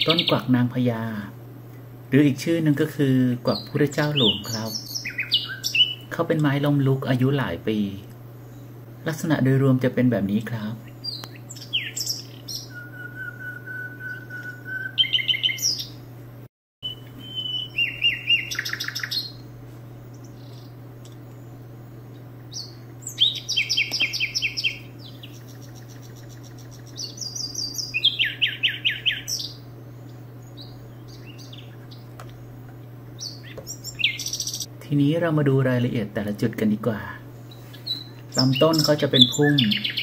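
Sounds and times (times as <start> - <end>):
fast pulsed bird chirping: 0.0 - 1.3, 2.2 - 16.1, 16.8 - 34.7, 37.0 - 40.0
steady low hum: 0.0 - 40.0
long whistled bird note: 12.6 - 15.6.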